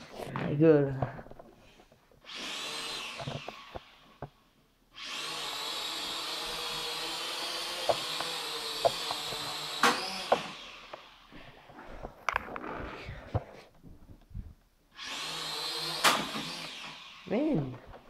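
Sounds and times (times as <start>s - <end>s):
toy drone propellers whining: 2.2s - 4.3s, 5.0s - 11.4s, 15.0s - 17.7s.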